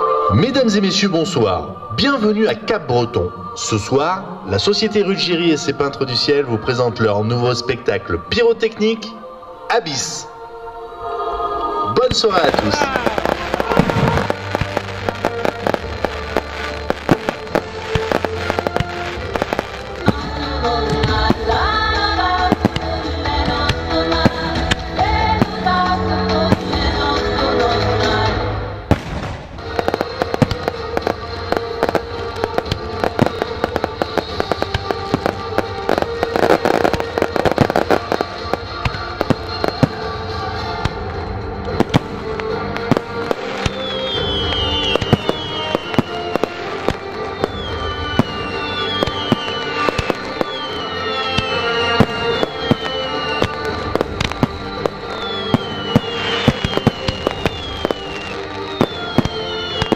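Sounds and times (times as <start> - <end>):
music soundtrack: 0.0 - 59.9
firework shells bursting: 12.5 - 25.7, 40.8 - 59.9
short falling whistles: 43.7 - 46.2, 47.5 - 53.8, 54.4 - 59.9.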